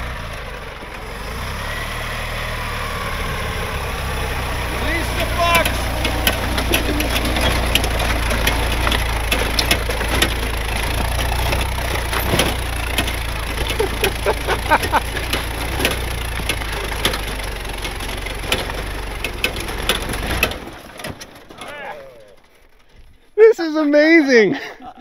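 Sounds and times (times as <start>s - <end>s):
vehicle engine running: 0.0s - 24.2s
sharp knocks and clicks: 5.1s - 21.6s.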